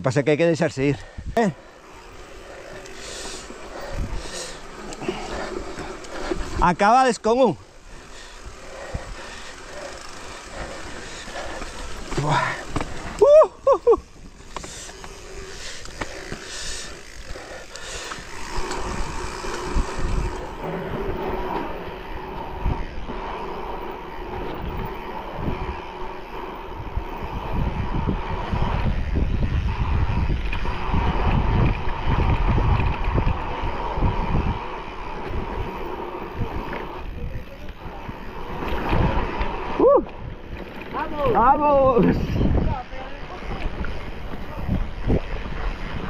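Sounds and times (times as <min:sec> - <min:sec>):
bike tyres on dirt and stones: 0:00.1 - 0:46.0
bike rattling: 0:00.6 - 0:46.0
wind buffeting microphone: 0:01.0 - 0:06.8, 0:07.6 - 0:46.0
faint steady whine: 0:07.5 - 0:41.7.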